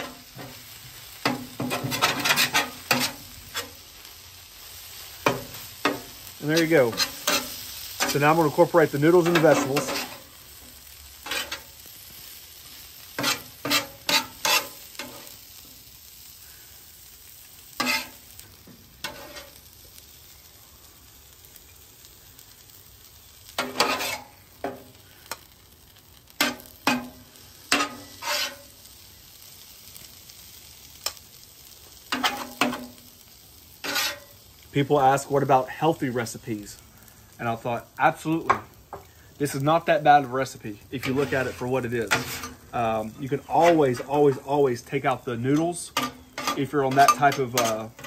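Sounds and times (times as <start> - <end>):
metal spatulas scraping griddle: 0.0 - 3.9, 5.2 - 10.3, 11.2 - 11.8, 13.0 - 15.4, 17.8 - 19.6, 23.5 - 25.4, 26.4 - 28.7, 32.1 - 33.0, 33.8 - 34.3, 41.0 - 44.6, 45.6 - 48.0
food sizzling on griddle: 0.0 - 48.0.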